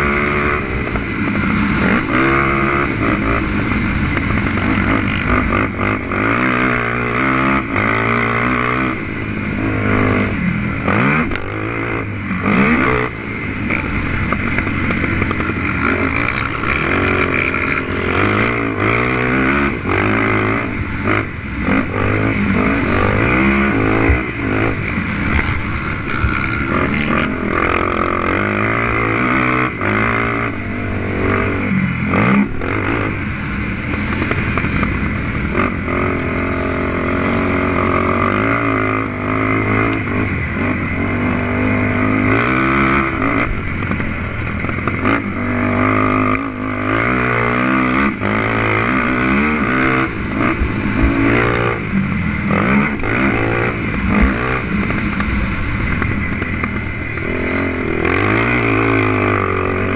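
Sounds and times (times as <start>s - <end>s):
quad engine revving: 0.0s - 59.9s.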